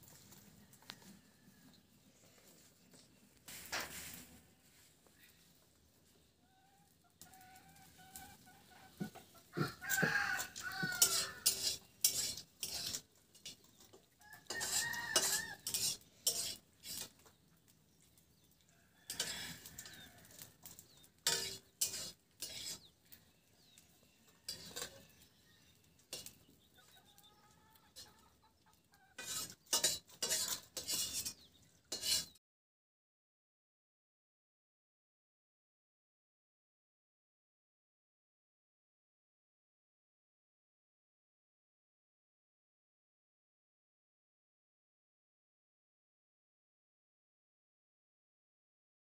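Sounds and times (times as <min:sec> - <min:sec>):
hens clucking: 0:06.2 - 0:11.9, 0:25.8 - 0:29.7.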